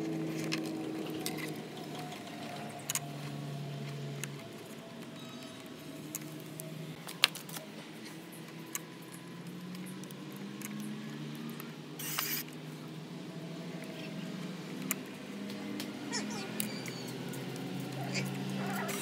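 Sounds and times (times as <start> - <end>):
electric screwdriver running: 12.0 - 12.5.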